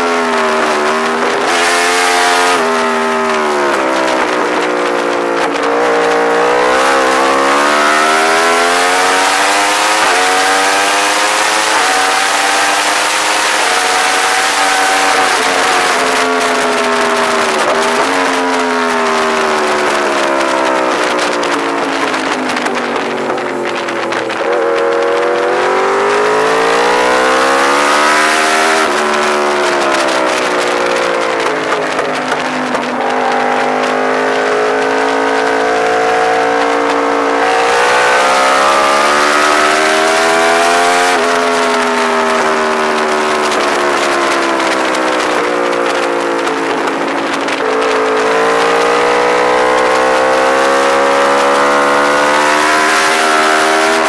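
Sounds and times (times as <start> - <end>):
motorcycle engine accelerating: 0.0 - 54.0
wind rushing: 13.7 - 54.0.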